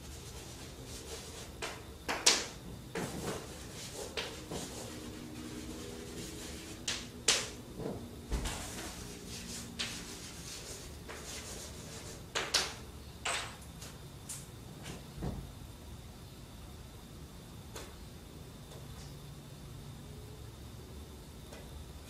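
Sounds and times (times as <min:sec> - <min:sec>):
chalk scratching on blackboard: 0:00.0 - 0:01.8, 0:03.0 - 0:07.5, 0:08.4 - 0:12.3
chalk tapping on blackboard: 0:00.3 - 0:07.6, 0:08.4 - 0:12.8.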